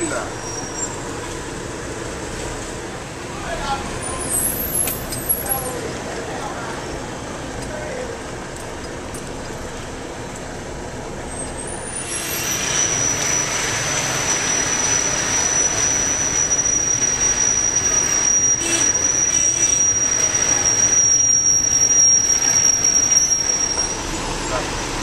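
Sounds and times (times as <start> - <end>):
vehicles driving past: 0.0 - 25.0.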